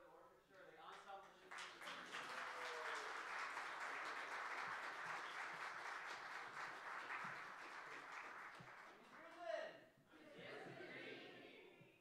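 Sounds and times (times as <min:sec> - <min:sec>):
crowd applauding: 0:00.9 - 0:09.5.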